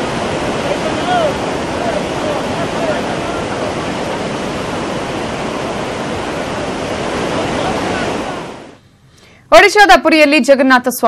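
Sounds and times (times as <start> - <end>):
water rushing down spillway: 0.0 - 8.8.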